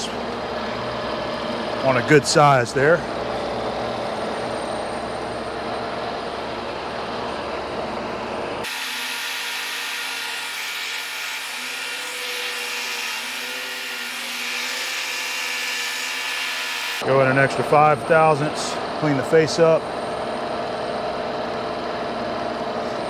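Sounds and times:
hissy metal cutting noise: 0.0s - 5.1s, 8.6s - 19.9s
lathe low rumble: 0.0s - 16.0s, 17.0s - 23.0s.

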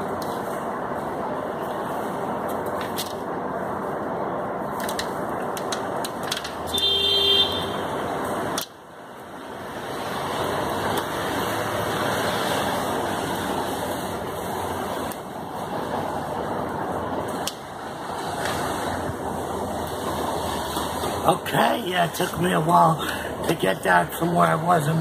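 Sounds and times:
traffic on a wet street: 0.0s - 25.0s
car horn: 6.7s - 8.0s.

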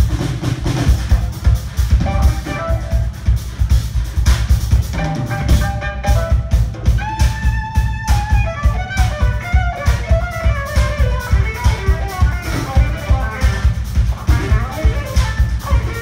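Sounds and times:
drum kit beat: 0.0s - 16.0s
heavy bass: 0.0s - 16.0s
lead melody sliding notes: 2.0s - 3.3s.

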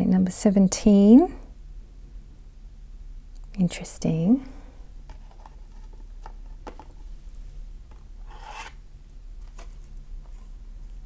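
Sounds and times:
cards rubbing: 7.9s - 8.8s
card sliding rasp: 8.2s - 8.8s.

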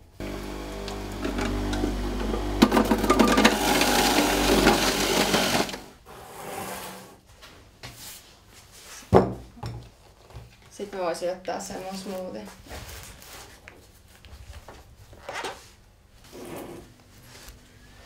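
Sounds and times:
juicer motor hum: 0.0s - 6.0s
vegetables crunching in juicer: 0.2s - 5.9s.

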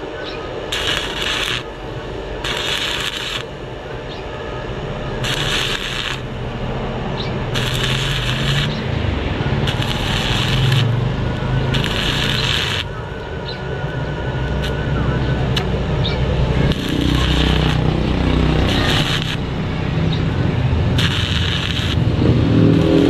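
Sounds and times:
low hum: 0.0s - 23.0s
crackling welding arc: 0.6s - 3.7s, 5.0s - 6.7s, 7.3s - 13.0s, 13.9s - 14.8s, 16.4s - 19.6s, 20.2s - 23.0s.

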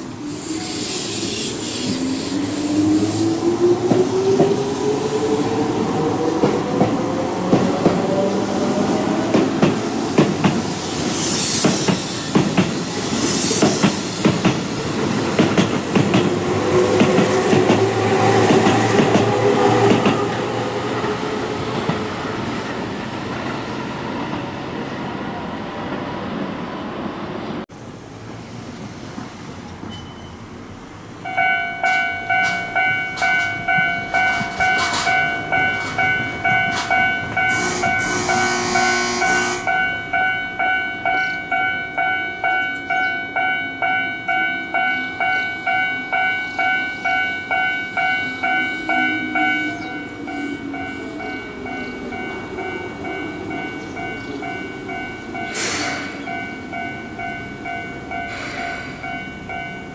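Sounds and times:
electric train running past: 0.0s - 59.9s
train wheel clatter: 6.3s - 22.1s, 31.8s - 38.6s
electronic warning bell: 31.3s - 55.6s
train motor whine: 36.7s - 39.7s.

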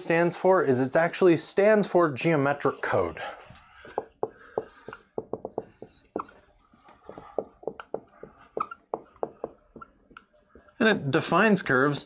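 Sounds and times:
marker squeaking on whiteboard: 3.6s - 10.9s.

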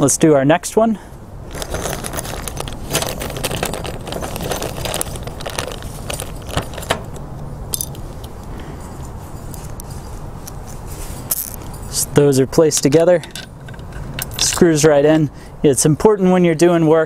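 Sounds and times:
metal bolts clinking in plastic bag: 1.5s - 8.4s, 9.4s - 12.0s, 12.8s - 14.6s.

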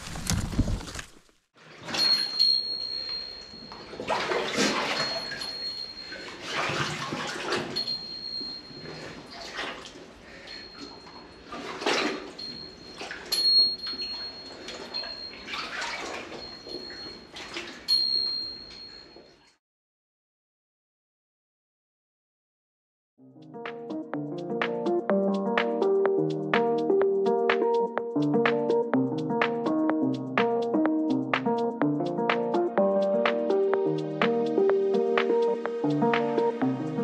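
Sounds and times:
footsteps splashing through water: 15.5s - 17.9s.

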